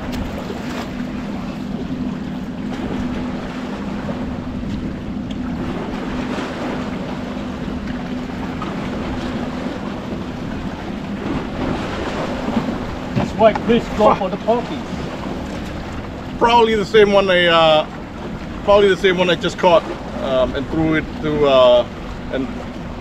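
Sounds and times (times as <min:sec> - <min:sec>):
boat motor humming: 0:00.0 - 0:23.0
water noise: 0:00.0 - 0:23.0
wind: 0:00.0 - 0:23.0.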